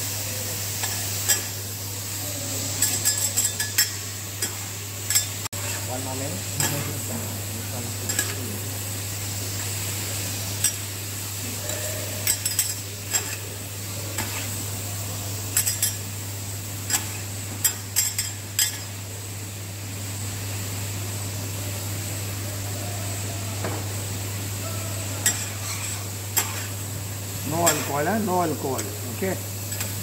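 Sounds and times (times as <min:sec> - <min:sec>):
vegetables sizzling: 0:00.0 - 0:30.0
metal spatulas clinking on griddle: 0:00.8 - 0:01.6, 0:02.7 - 0:05.8, 0:06.6 - 0:06.9, 0:08.1 - 0:08.4, 0:10.6 - 0:10.9, 0:11.6 - 0:13.5, 0:14.1 - 0:14.6, 0:15.5 - 0:16.0, 0:16.9 - 0:18.9, 0:25.2 - 0:26.7, 0:27.5 - 0:29.0, 0:29.6 - 0:30.0.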